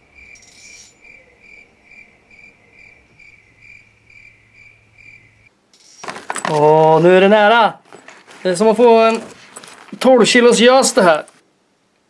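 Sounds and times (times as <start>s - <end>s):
cricket chirping: 0.0s - 6.0s.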